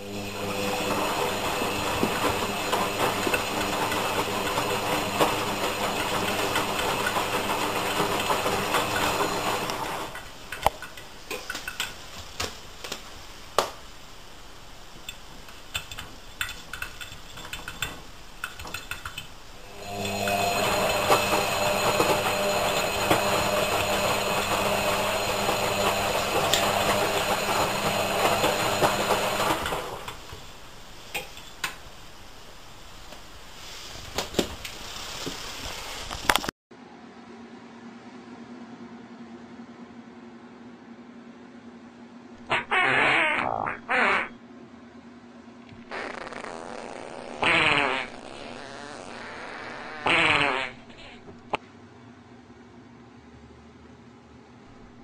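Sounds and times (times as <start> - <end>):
washing machine motor humming: 0.0 - 13.5, 17.5 - 31.0.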